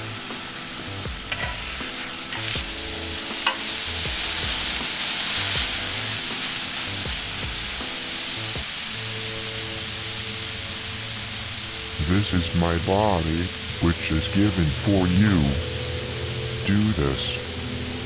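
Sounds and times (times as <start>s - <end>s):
meat sizzling on a griddle: 0.0s - 18.0s
metal tongs clicking: 1.3s - 2.6s, 3.4s - 3.7s.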